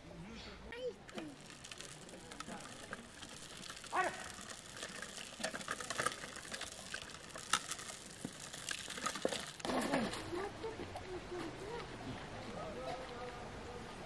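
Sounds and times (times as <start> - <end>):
child's voice: 0.6 - 1.4
tricycle wheels crunching on stones: 0.8 - 10.5.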